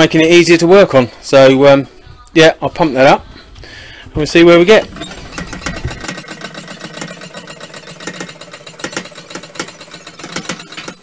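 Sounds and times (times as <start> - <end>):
foot pump clicks and knocks: 4.8 - 11.0.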